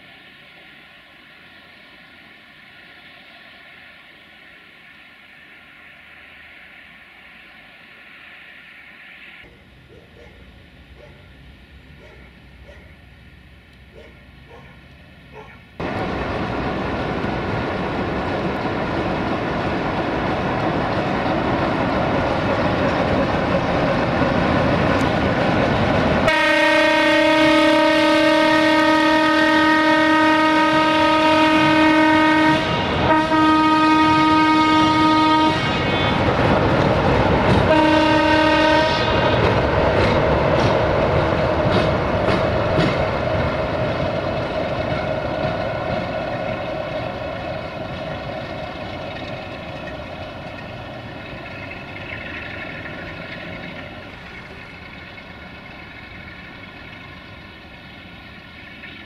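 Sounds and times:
diesel locomotives running under power: 0.0 - 59.0
train crossing steel bridge: 0.0 - 59.0
locomotive horn blasts: 26.3 - 36.4, 37.7 - 39.4.

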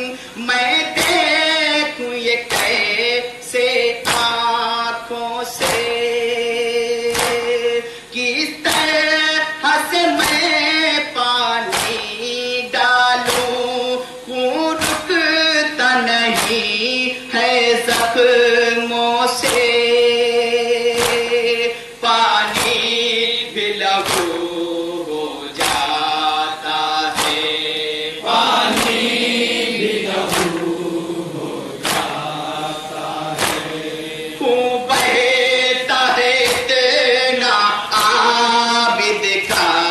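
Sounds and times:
group of men singing along: 0.0 - 39.9
man chanting a lament: 0.0 - 39.9
hands slapping chests: 2.5 - 2.9, 4.0 - 4.4, 5.6 - 6.0, 7.1 - 7.6, 8.7 - 9.0, 11.7 - 12.2, 13.2 - 13.6, 14.8 - 15.2, 16.3 - 16.8, 19.4 - 19.7, 21.0 - 21.4, 22.5 - 23.0, 24.0 - 24.6, 25.6 - 26.1, 27.0 - 31.0, 31.8 - 34.1, 34.9 - 35.4, 36.3 - 36.8, 37.9 - 38.3.

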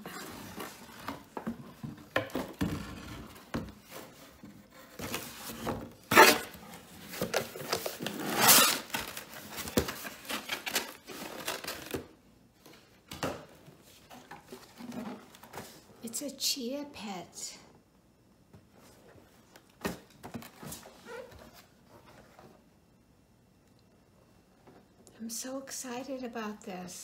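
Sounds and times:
cardboard box being unpacked: 0.0 - 12.1.

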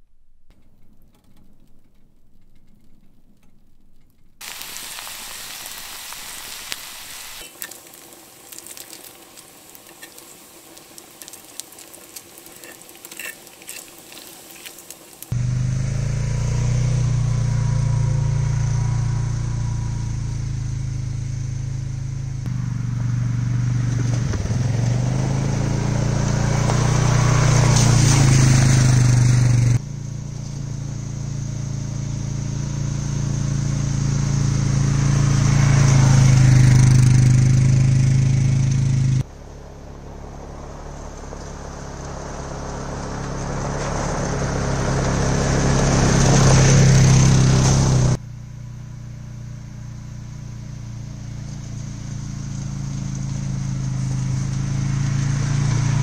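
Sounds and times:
food sizzling in a frying pan: 4.4 - 15.4
atv engine running: 12.6 - 56.0.

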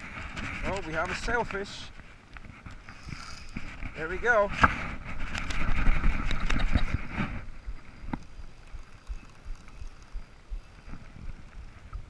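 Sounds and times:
low wind: 0.0 - 12.0
water noise: 0.0 - 12.0
fishing reel drag buzzing: 2.8 - 3.7.

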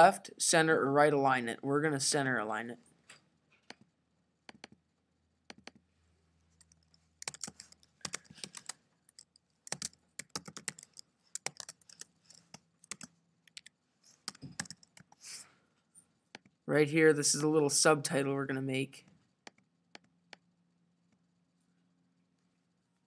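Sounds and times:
typing on a computer keyboard: 4.5 - 4.8, 5.5 - 5.8, 6.6 - 15.2.

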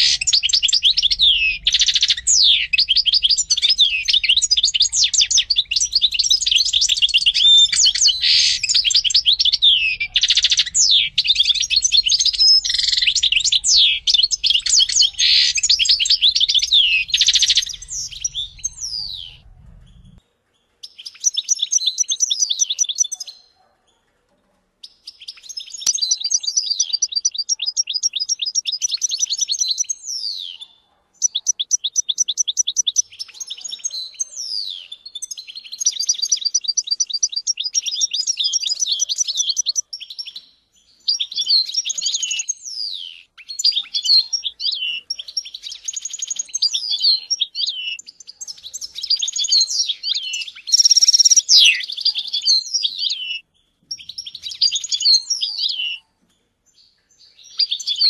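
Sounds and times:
goldfinch singing: 0.0 - 20.2, 41.0 - 56.0.

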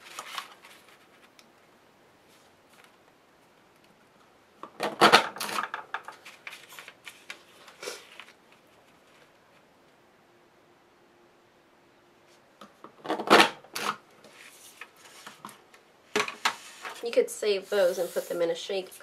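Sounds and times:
paper rustling: 0.0 - 1.4, 5.5 - 9.7, 14.2 - 15.6, 16.4 - 18.6.

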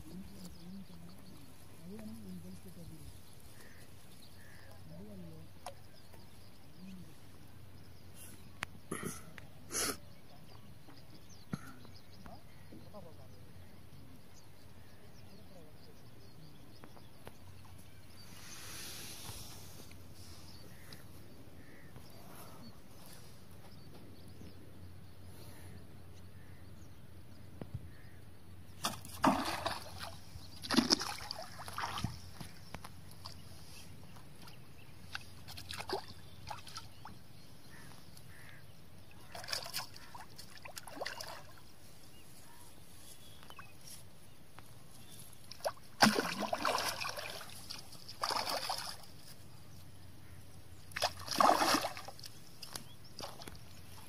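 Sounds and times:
fish splashing at water surface: 28.8 - 32.2, 45.6 - 49.2, 50.9 - 53.5.

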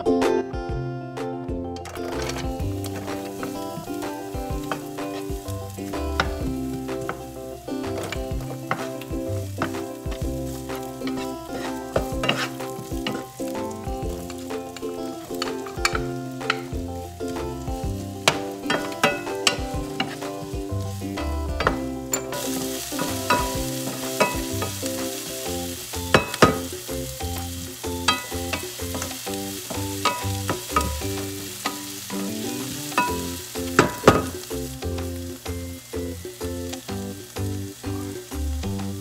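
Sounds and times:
onions sizzling in a skillet: 2.1 - 39.0
wooden spatula scraping a pan: 2.3 - 16.7, 18.2 - 20.9.

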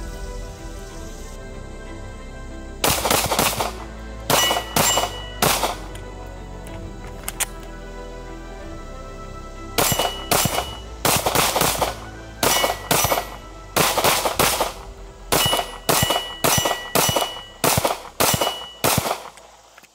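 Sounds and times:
pistol shots: 2.8 - 6.0, 9.8 - 19.5.

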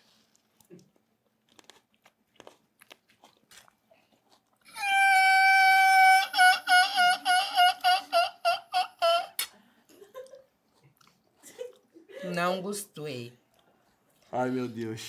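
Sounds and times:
chips being chewed: 0.2 - 4.7.

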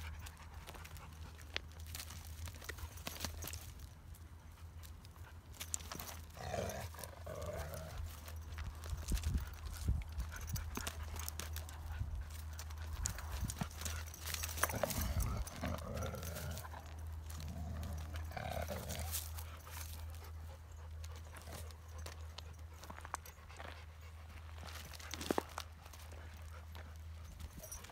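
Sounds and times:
paws crunching on gravel: 0.0 - 27.9
dogs growling: 5.9 - 8.3, 14.2 - 19.9.

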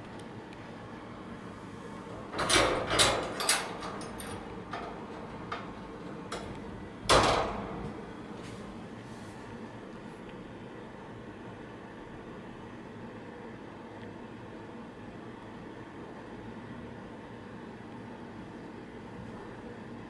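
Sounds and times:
metal cage clanks and rattles: 2.3 - 7.8.

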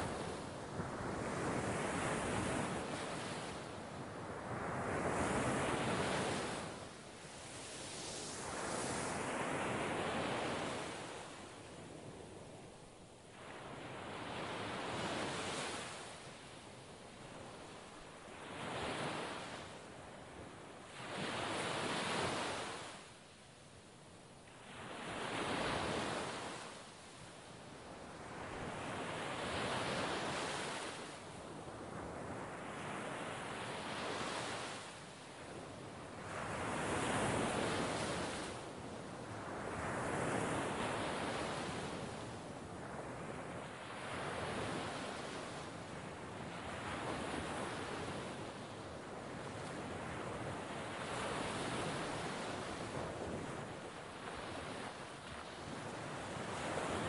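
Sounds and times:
sea waves breaking on shore: 13.3 - 23.2, 27.9 - 57.0.

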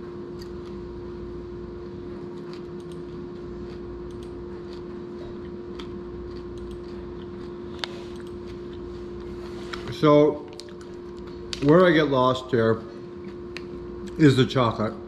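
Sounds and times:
steady low hum: 0.0 - 15.0
person chewing with crunches: 1.8 - 11.8, 12.9 - 14.2.

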